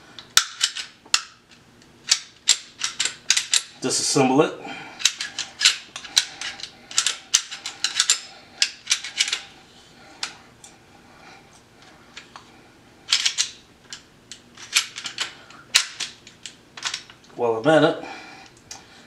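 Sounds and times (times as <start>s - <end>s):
pistol metallic clicks and snaps: 0.2s - 3.7s.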